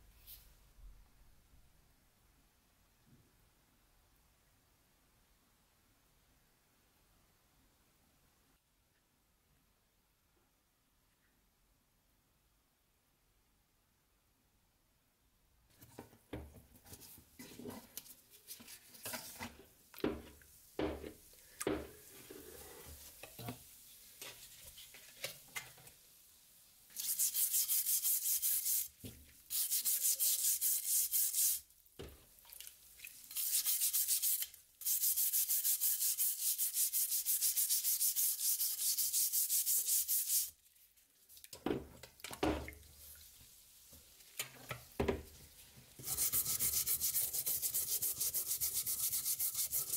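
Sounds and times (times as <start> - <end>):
brush scrubbing wet blade: 26.9 - 28.9, 29.5 - 31.6, 33.3 - 40.5, 46.0 - 49.9.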